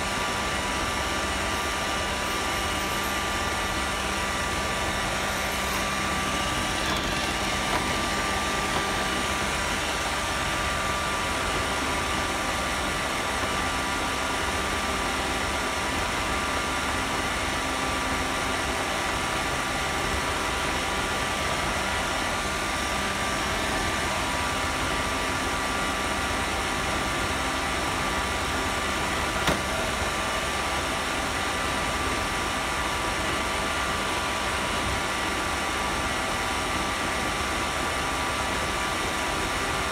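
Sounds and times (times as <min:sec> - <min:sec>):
robot vacuum motor hum: 0:05.0 - 0:10.8.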